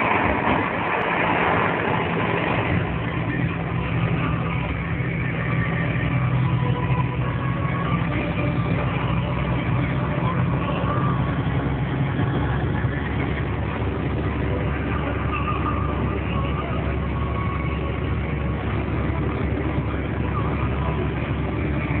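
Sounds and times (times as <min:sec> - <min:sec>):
continuous rushing noise: 0:00.0 - 0:22.0
truck engine running: 0:00.0 - 0:22.0.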